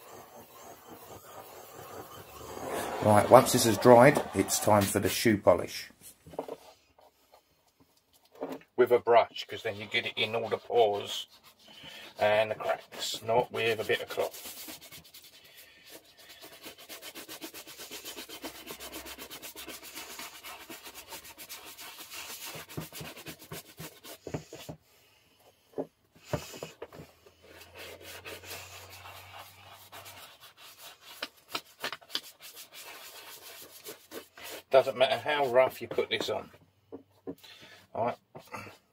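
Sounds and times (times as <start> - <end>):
shoe brush scrubbing: 0.0 - 5.1, 9.6 - 24.8, 26.2 - 36.4.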